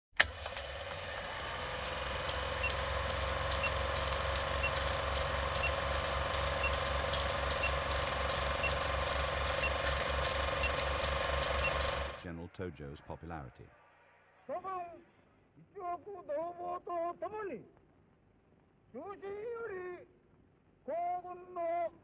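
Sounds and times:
film projector clatter: 0:00.1 - 0:12.3
projector hum: 0:00.2 - 0:12.3
film crackle and pops: 0:00.8 - 0:12.3.

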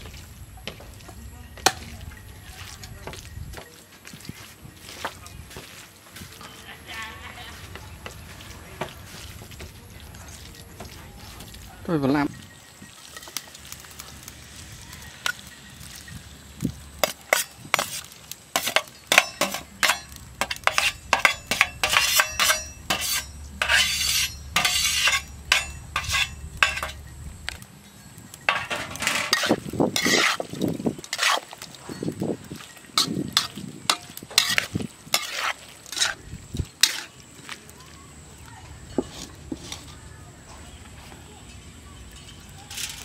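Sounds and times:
meat sizzling in wok: 0:06.8 - 0:40.0
metal spatula scraping tray: 0:17.0 - 0:27.0, 0:28.5 - 0:30.5, 0:31.1 - 0:31.6, 0:33.0 - 0:36.2, 0:36.8 - 0:37.1.

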